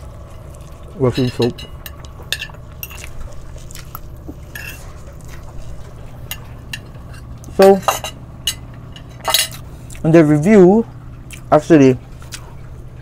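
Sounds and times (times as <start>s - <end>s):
steady low hum: 0.0s - 13.0s
person speaking: 1.0s - 1.7s
plate and cutlery clinks: 6.3s - 9.6s.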